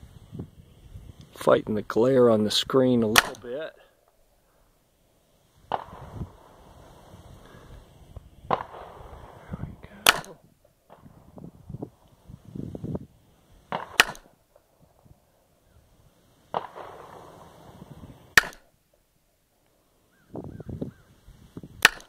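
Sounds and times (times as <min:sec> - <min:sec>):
pistol shots: 0:03.1 - 0:03.4, 0:08.5 - 0:09.4, 0:10.0 - 0:11.0, 0:13.7 - 0:14.4, 0:16.5 - 0:17.6, 0:18.3 - 0:18.7.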